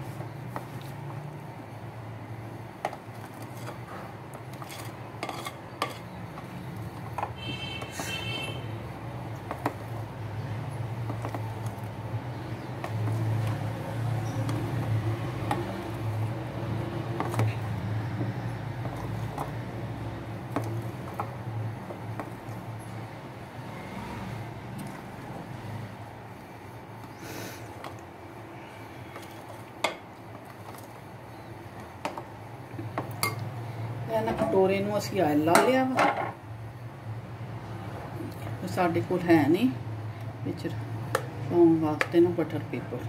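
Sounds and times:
spoon clinking and scraping glass bowl: 4.6s - 6.1s.

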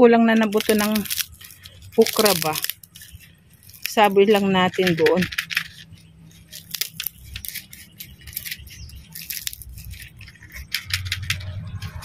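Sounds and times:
dry okra pod crackling: 0.1s - 12.0s.

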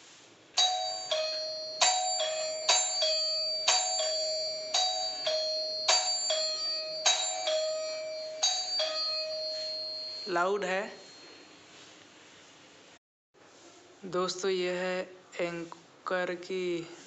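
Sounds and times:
ding-dong doorbell chiming: 0.6s - 11.8s.

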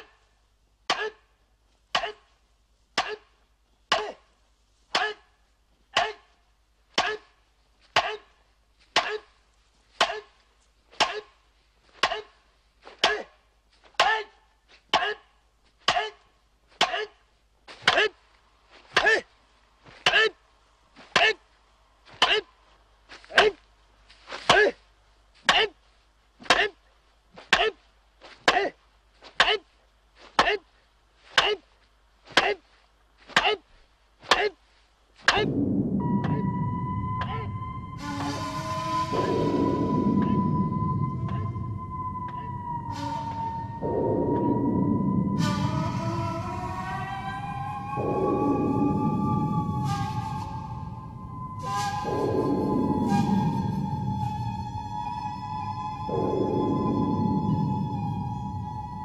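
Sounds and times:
sharp chopping strikes: 1.9s - 2.2s, 3.0s - 3.2s, 3.9s - 4.2s, 6.0s - 6.2s, 7.0s - 7.3s, 8.0s - 8.2s, 8.9s - 9.3s, 10.0s - 10.3s, 10.9s - 11.4s, 12.0s - 12.3s, 12.9s - 13.3s, 14.0s - 14.2s, 15.8s - 17.1s, 34.2s - 34.5s, 35.2s - 35.5s
music with low rumble: 35.4s - 59.0s.

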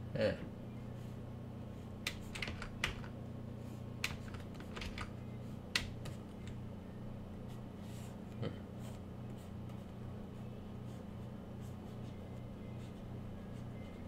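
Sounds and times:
low steady hum: 0.0s - 14.0s
keyboard keys clicking: 2.0s - 3.1s, 4.0s - 5.1s.

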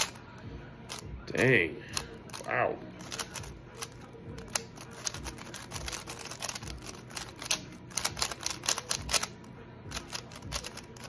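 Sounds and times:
puzzle cube clicking as turned: 3.0s - 11.0s.

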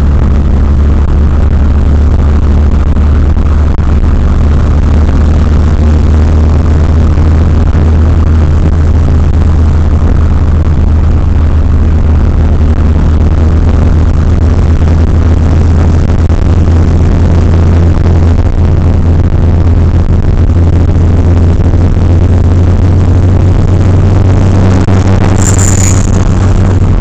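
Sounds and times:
car engine low drone: 0.0s - 27.0s
road noise: 0.0s - 27.0s.

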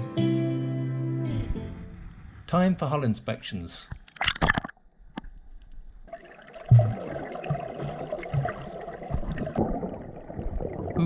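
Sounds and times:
muffled underwater water sloshing: 4.0s - 11.0s.

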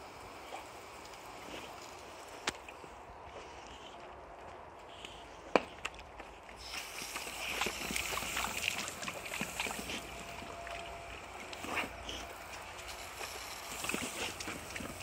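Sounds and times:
dogs lapping at water: 6.4s - 15.0s
water spraying from hose nozzle: 6.6s - 15.0s.

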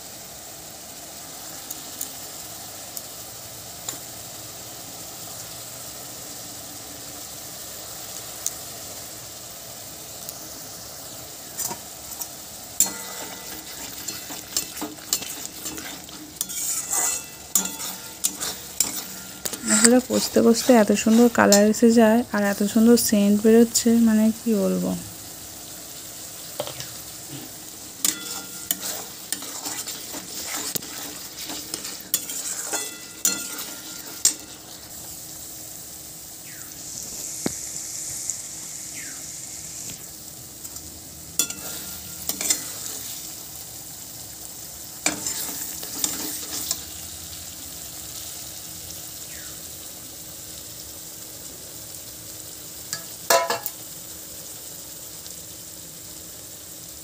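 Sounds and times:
spice paste sizzling in oil: 0.0s - 57.0s
spatula scraping metal pan: 12.8s - 21.9s, 26.6s - 34.9s, 41.4s - 43.2s, 45.0s - 46.8s.

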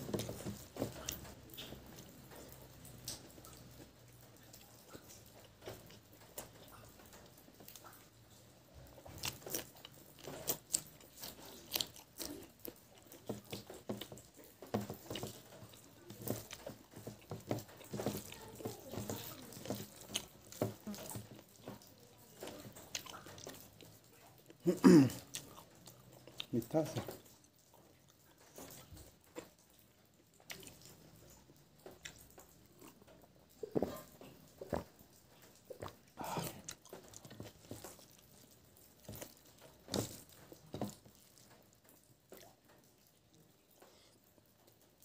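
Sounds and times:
wet chewing and smacking: 0.0s - 45.0s
person speaking: 26.5s - 27.2s.

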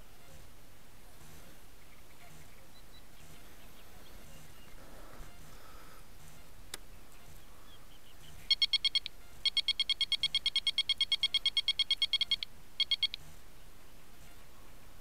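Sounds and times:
electronic bite alarm beeping: 8.4s - 13.2s.

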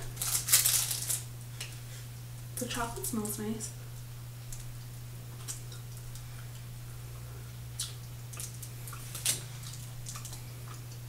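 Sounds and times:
steady low hum: 0.0s - 11.0s
wet mouth clicks and smacks: 5.4s - 6.6s, 7.8s - 11.0s.

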